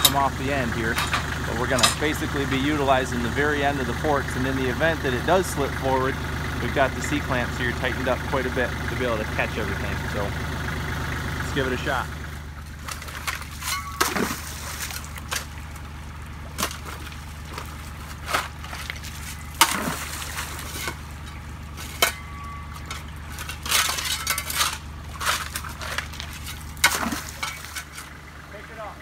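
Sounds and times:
tractor engine idling: 0.0 - 29.0
tool scraping in muddy water: 12.7 - 15.8, 16.5 - 21.1, 22.8 - 28.2.

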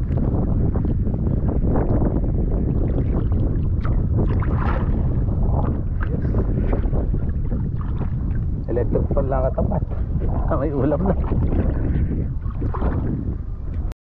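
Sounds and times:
steady low rumble: 0.0 - 14.0
river water sloshing and splashing: 2.8 - 8.5, 9.6 - 13.3.

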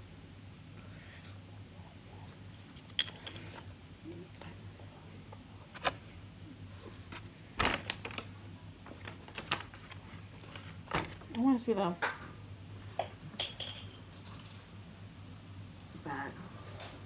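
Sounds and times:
low steady hum: 0.0 - 17.0
paper crinkling: 7.0 - 11.3.

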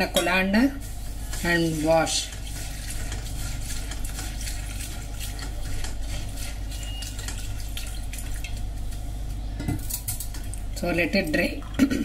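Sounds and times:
water pouring into colander: 1.7 - 8.6.

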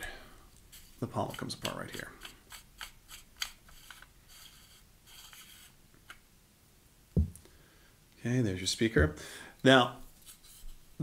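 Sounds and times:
metal threads scraping and clicking: 0.6 - 5.7
soft rubbing: 0.6 - 5.8, 10.0 - 11.0
low thump: 7.2 - 7.4.

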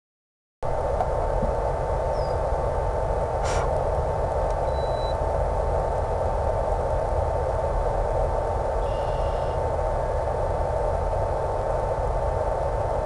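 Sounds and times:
static hiss: 1.4 - 4.0
thin hum: 4.5 - 5.2, 8.8 - 9.7.

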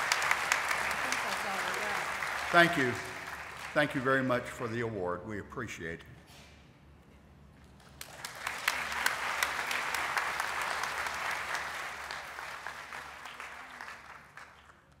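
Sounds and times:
audience applauding: 0.0 - 4.4, 8.0 - 15.0.

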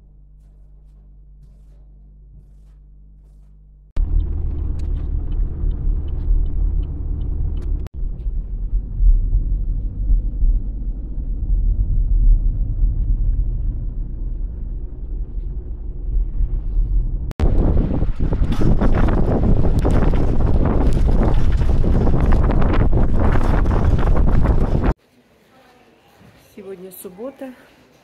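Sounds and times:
loud low rumble: 4.0 - 25.0.

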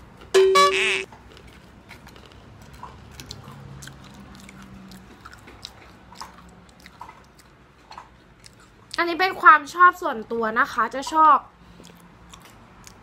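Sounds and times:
person chewing crunchy chips: 0.8 - 9.0, 11.7 - 13.0.

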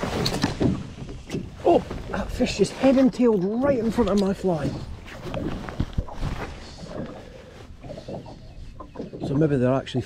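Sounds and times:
waves slapping against boat hull: 0.0 - 9.7
wind noise: 3.6 - 9.3.

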